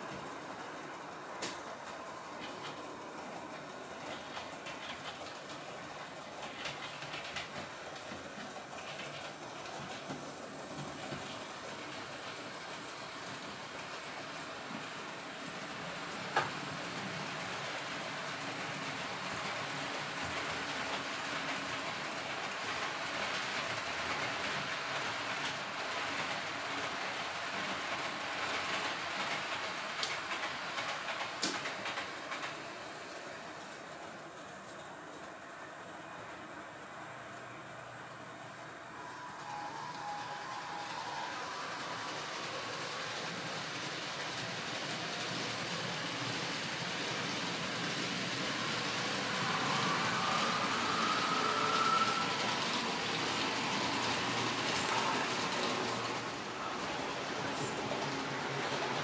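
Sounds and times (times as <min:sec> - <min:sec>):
model train rolling rumble: 0:00.0 - 0:59.0
sharp track clicks: 0:28.8 - 0:32.6
model train rolling hiss: 0:36.0 - 0:59.0.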